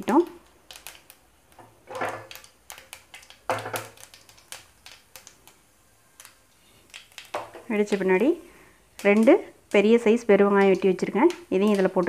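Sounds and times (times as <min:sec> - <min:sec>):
seeds popping in hot oil: 0:00.0 - 0:12.0.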